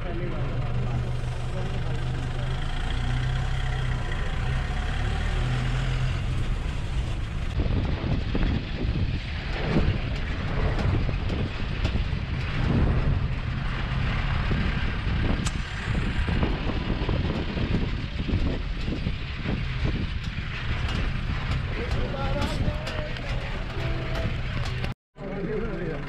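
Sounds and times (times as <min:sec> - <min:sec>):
truck engine running: 0:00.0 - 0:26.0
truck body rattling and bumping: 0:06.2 - 0:25.0.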